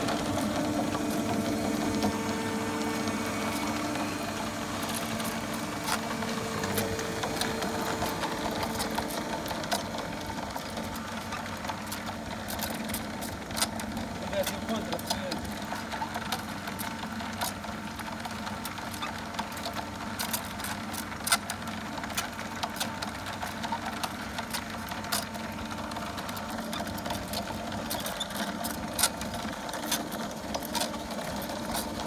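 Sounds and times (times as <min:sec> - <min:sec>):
chain saw machine humming: 0:00.0 - 0:32.0.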